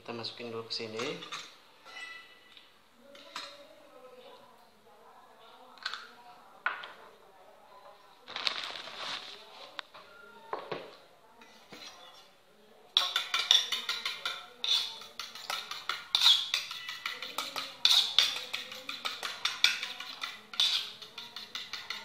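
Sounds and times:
fork clinking against metal bowl: 0:13.0 - 0:22.0.

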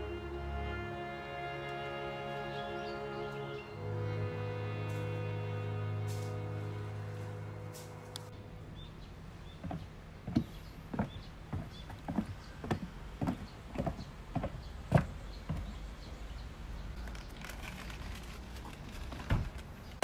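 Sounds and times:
footsteps on pavement: 0:04.8 - 0:08.4, 0:09.5 - 0:16.2.

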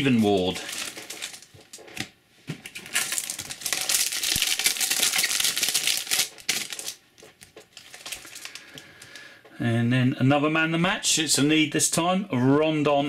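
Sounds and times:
foil wrapper crinkling and tearing: 0:00.0 - 0:02.1, 0:02.7 - 0:09.3.

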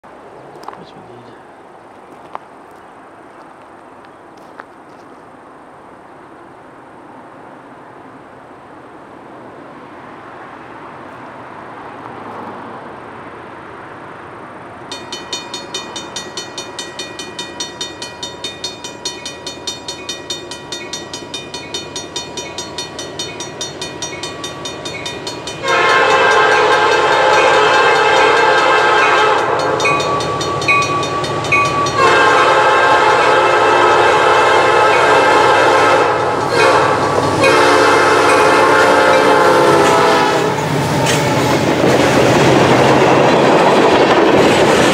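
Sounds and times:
rapid metallic ringing: 0:14.9 - 0:32.0
train horn blasts: 0:25.6 - 0:30.9, 0:31.5 - 0:40.7.

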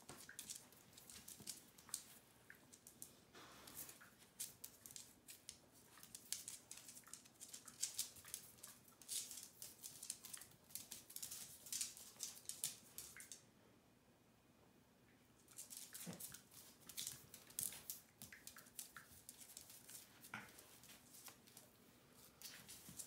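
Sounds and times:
dog claws scrabbling on floor: 0:03.7 - 0:13.4, 0:15.5 - 0:21.7, 0:22.4 - 0:23.0.

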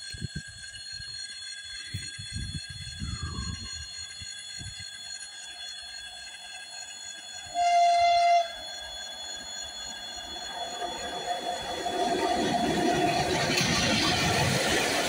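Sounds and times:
locomotive horn blast: 0:07.5 - 0:08.6.

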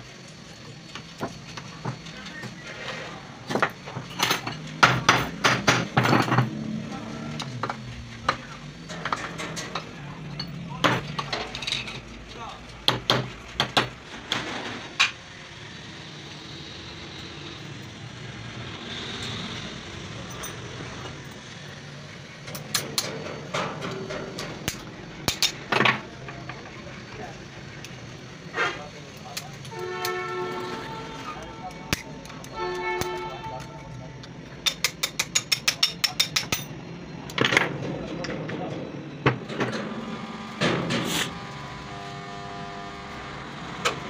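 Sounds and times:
metal parts clinking and knocking: 0:07.6 - 0:12.2, 0:20.2 - 0:21.4, 0:22.4 - 0:26.7.

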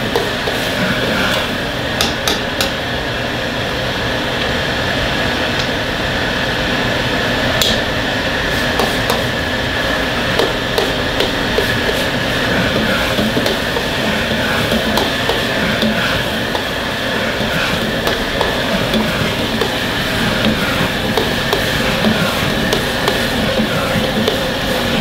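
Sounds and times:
vegetables sizzling in a wok: 0:00.0 - 0:02.0, 0:07.9 - 0:25.0
gas burner roaring: 0:00.0 - 0:25.0.

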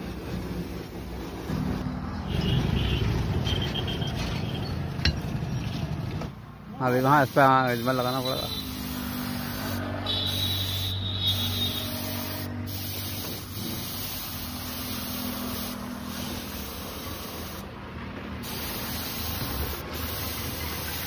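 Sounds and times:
paint spray gun hissing: 0:06.9 - 0:17.7, 0:18.4 - 0:21.0.

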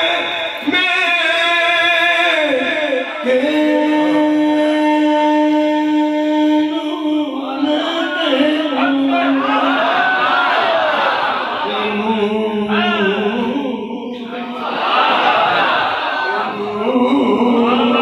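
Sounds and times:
man singing unaccompanied: 0:00.0 - 0:09.8, 0:11.6 - 0:14.6, 0:16.4 - 0:18.0.

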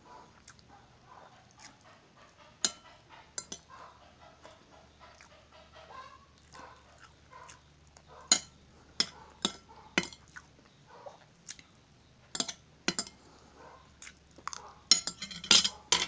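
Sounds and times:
cutlery clinking on a plate: 0:02.6 - 0:03.7, 0:08.3 - 0:10.3, 0:12.3 - 0:13.2, 0:14.9 - 0:16.0.

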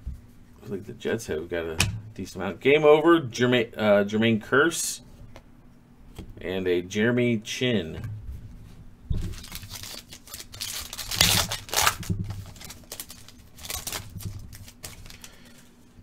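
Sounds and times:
foil wrapper crinkling: 0:09.2 - 0:15.7.

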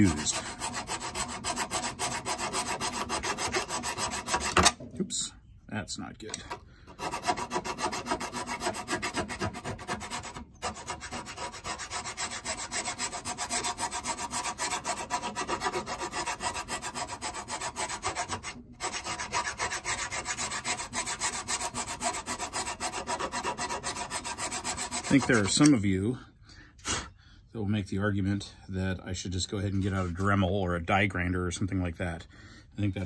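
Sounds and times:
file rasping on metal: 0:00.0 - 0:04.8, 0:06.4 - 0:25.8.

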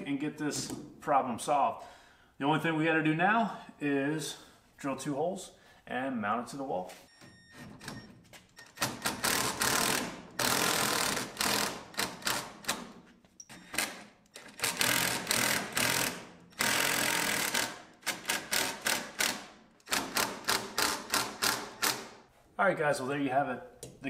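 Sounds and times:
drill driving screws: 0:08.6 - 0:22.2
drill boring into concrete: 0:13.6 - 0:19.3.

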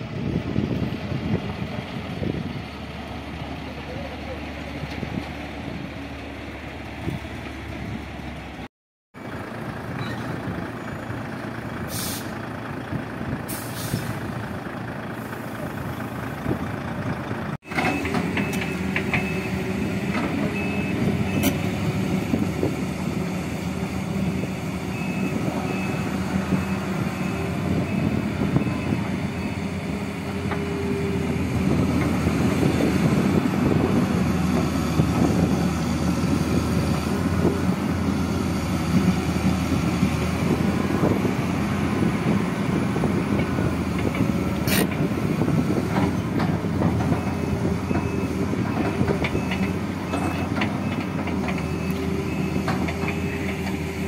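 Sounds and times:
diesel truck engine running: 0:00.0 - 0:54.0
excavator diesel engine: 0:00.0 - 0:54.0
air brake hisses: 0:11.9 - 0:12.4, 0:13.5 - 0:14.2
reversing alarm beeping: 0:20.5 - 0:21.6, 0:24.8 - 0:29.8, 0:47.1 - 0:53.4.

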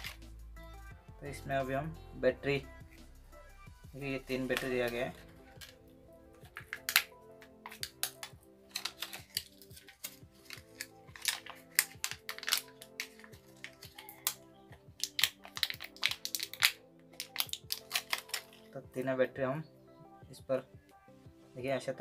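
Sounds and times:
faint background music: 0:00.0 - 0:22.0
plastic packaging crinkling: 0:06.5 - 0:14.4, 0:15.0 - 0:18.8.

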